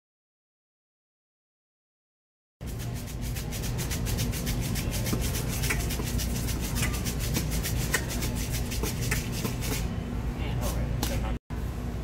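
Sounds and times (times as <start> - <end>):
steady low hum: 2.6 - 12.0.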